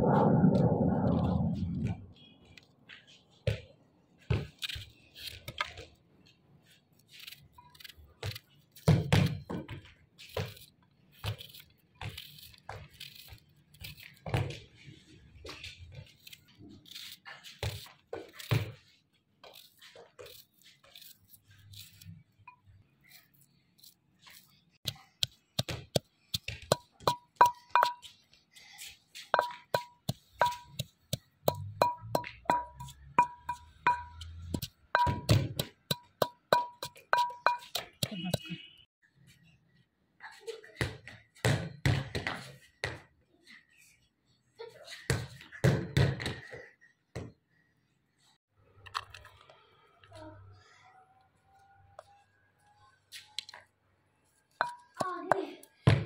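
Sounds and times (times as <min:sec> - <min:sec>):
knife cutting vegetables: 0:10.5 - 0:14.2.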